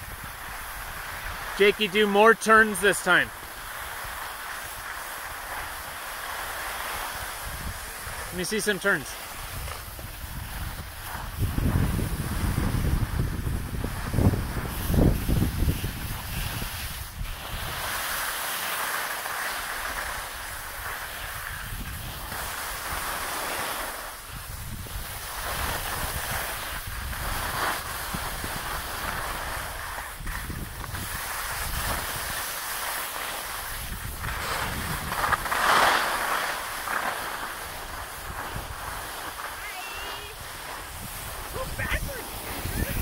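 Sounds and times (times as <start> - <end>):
skis scraping over snow: 0.0 - 43.0
wind buffeting microphone: 6.5 - 8.3, 9.2 - 18.0, 24.3 - 32.4, 33.6 - 35.6, 40.2 - 43.0.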